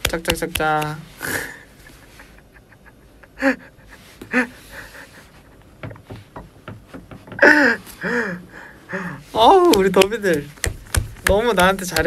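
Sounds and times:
man laughing: 0:01.2 - 0:06.0.

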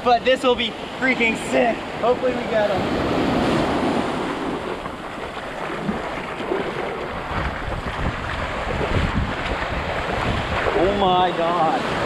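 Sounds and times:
ocean surf on beach: 0:00.0 - 0:12.0
wind rumbling on microphone: 0:00.6 - 0:12.0.

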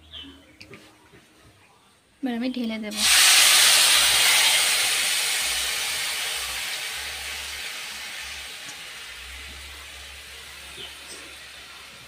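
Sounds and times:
hot oil sizzling: 0:02.9 - 0:12.0
water poured into pan: 0:03.0 - 0:09.1.

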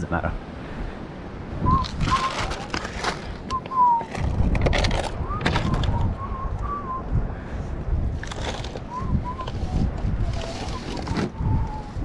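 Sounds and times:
plastic bag rustling: 0:01.7 - 0:05.8.

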